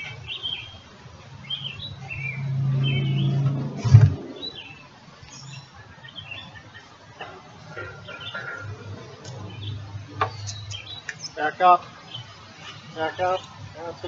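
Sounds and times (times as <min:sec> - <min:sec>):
birds chirping: 0:00.0 - 0:14.0
loud low thump: 0:02.4 - 0:04.5.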